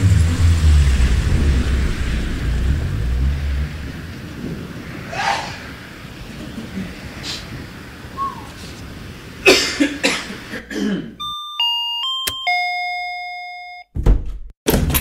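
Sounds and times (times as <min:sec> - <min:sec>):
crackling noisy strikes: 0:00.0 - 0:05.1.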